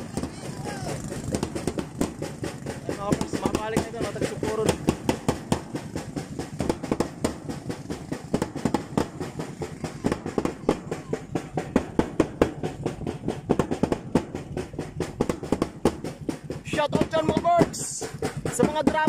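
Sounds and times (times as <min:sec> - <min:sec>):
drums beaten fast: 0:00.0 - 0:19.0.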